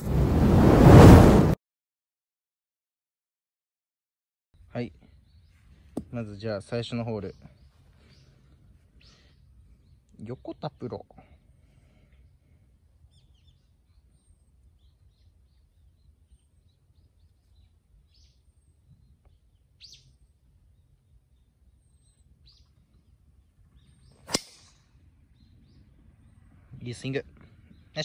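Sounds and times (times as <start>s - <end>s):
faint bird chirps: 4.6s - 28.0s
golf ball struck by driver: 24.2s - 24.8s.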